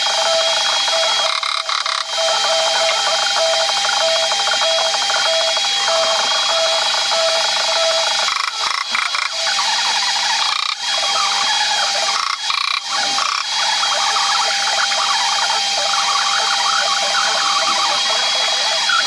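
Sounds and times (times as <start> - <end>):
faint steady whine: 0.0 - 19.0.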